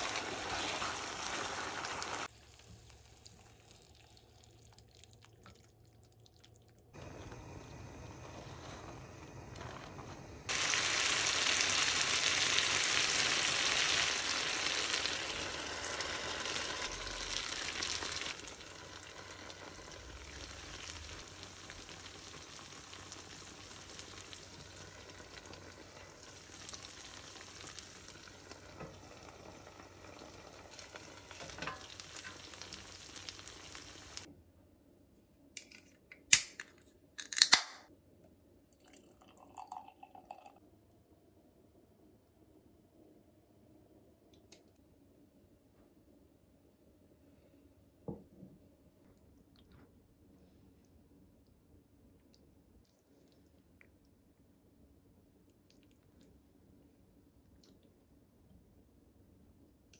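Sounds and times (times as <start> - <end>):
food sizzling in a frying pan: 0.0 - 4.3, 7.0 - 34.3.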